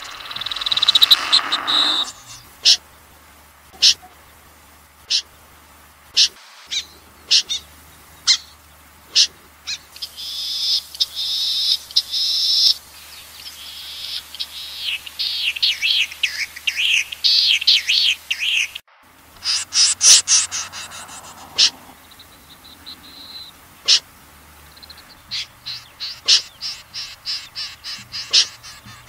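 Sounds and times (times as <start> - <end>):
recorded snipe calls: 0.0 - 2.8, 3.7 - 4.3, 5.0 - 5.3, 6.1 - 12.8, 19.4 - 29.0
low steady hum: 0.0 - 17.8, 18.9 - 29.0.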